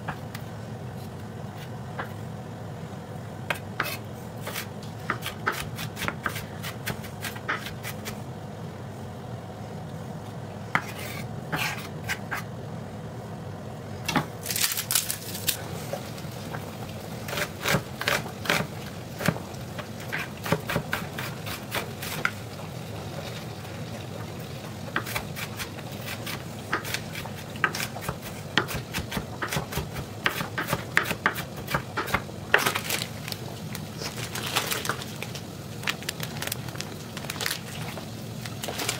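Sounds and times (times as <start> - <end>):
steady low hum: 0.0 - 38.9
knife chopping on wooden board: 3.5 - 8.2, 20.1 - 22.3, 25.0 - 25.7, 26.7 - 32.8.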